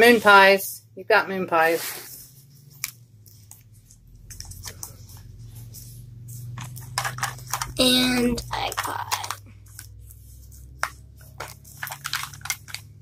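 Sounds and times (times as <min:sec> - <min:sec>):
plastic wrapper crinkling: 0:02.6 - 0:13.0.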